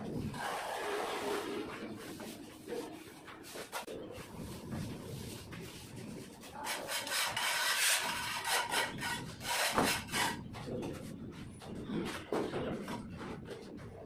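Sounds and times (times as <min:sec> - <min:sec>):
plastering tools scraping plaster: 0:05.2 - 0:11.2.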